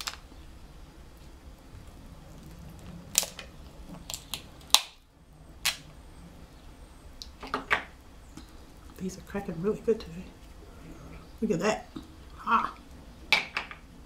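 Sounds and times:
crab shells cracking: 0.0 - 0.3, 2.4 - 5.0.

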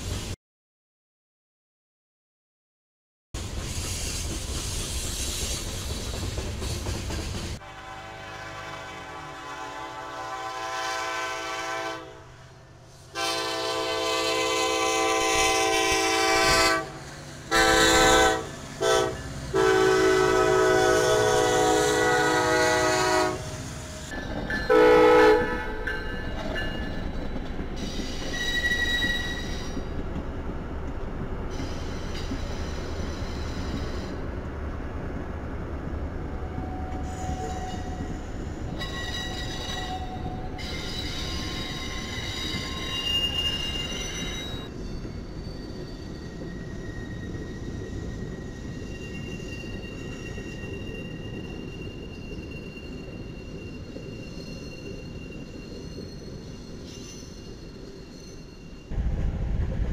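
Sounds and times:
train cars rumbling past: 3.4 - 59.9
locomotive air horn blasts: 7.6 - 12.3, 13.1 - 23.7, 24.7 - 25.8
train horn note: 7.6 - 12.3, 13.1 - 23.7, 24.7 - 25.8
wheel squeal: 26.4 - 30.0, 31.5 - 34.2, 36.6 - 58.9.

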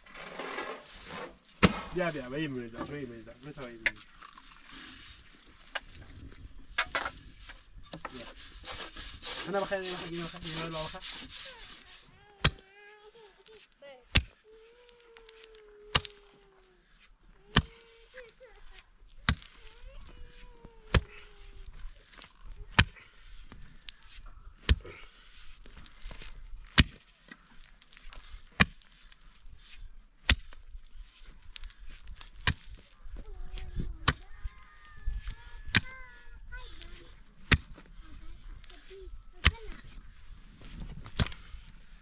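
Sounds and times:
pickaxe striking stony soil: 1.5 - 2.2, 12.4 - 12.6, 14.1 - 14.4, 15.3 - 16.3, 17.5 - 17.9, 19.2 - 19.7, 20.9 - 23.0, 24.6 - 25.0, 25.7 - 30.7, 31.6 - 32.9, 36.9 - 37.9, 40.6 - 41.7.

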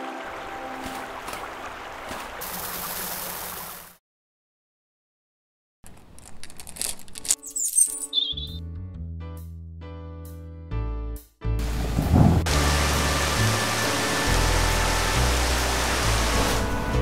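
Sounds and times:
music: 0.0 - 1.4, 7.4 - 17.0
stream rushing: 0.0 - 3.9, 11.6 - 17.0
rattle of small clicks: 5.9 - 8.1.

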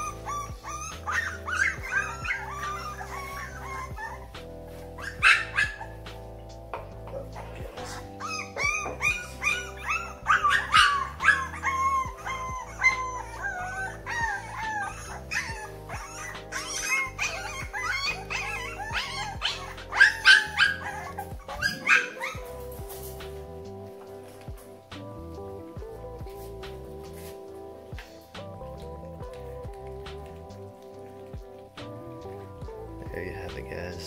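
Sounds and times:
puppies whining and yelping: 0.0 - 33.3
background music: 0.0 - 34.0.

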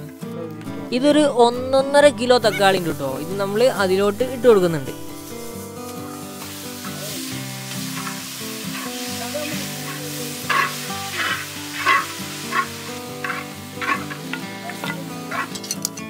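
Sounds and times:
tomatoes sizzling in oil: 2.2 - 16.0
metal spoon scraping pan: 7.7 - 16.0.

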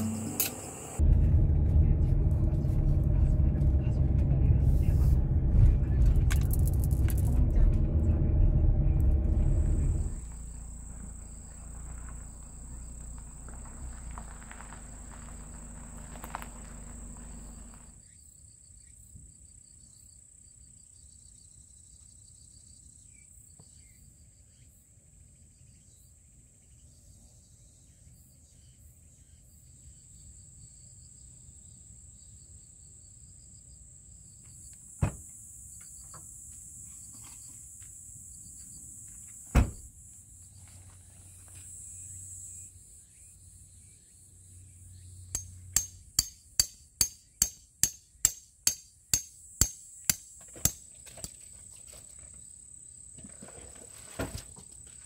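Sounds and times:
insects droning: 0.0 - 1.0, 9.2 - 24.6, 27.6 - 55.0
hammer strikes: 45.4 - 50.8.

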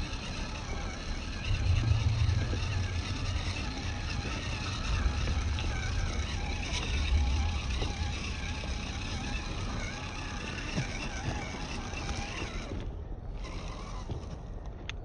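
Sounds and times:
electric motor whining: 0.0 - 14.7
low rumble: 0.7 - 10.2.

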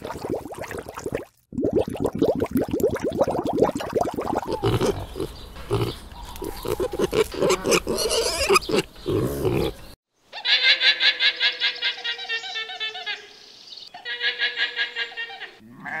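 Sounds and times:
pigs grunting: 4.4 - 9.9.

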